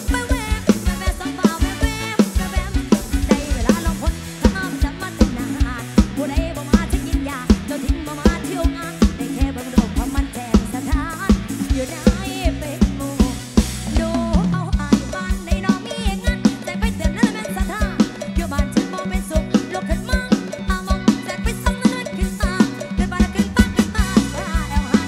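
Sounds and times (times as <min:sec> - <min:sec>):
band playing live: 0:00.0 - 0:25.0
bass line: 0:00.0 - 0:25.0
bending lead melody: 0:00.0 - 0:25.0
drum kit beat: 0:00.0 - 0:25.0.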